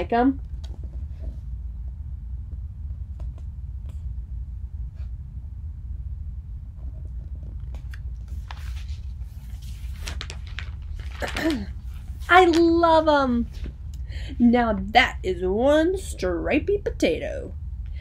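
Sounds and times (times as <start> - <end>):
steady low rumble: 0.0 - 18.0
book pages rustling: 7.3 - 12.8.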